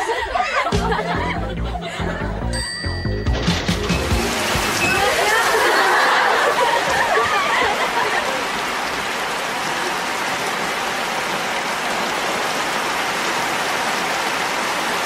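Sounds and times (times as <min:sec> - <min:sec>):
water spraying onto umbrella: 0:03.4 - 0:15.0.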